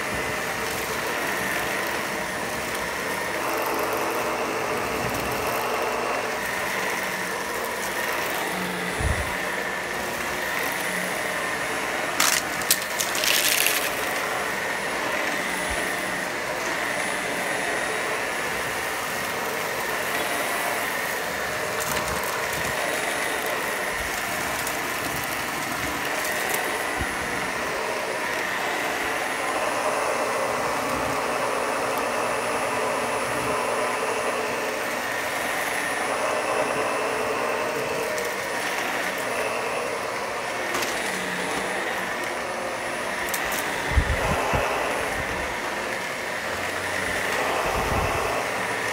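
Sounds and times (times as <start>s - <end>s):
upright vacuum whining: 0.0s - 48.9s
clatter of hard particles: 12.2s - 14.1s.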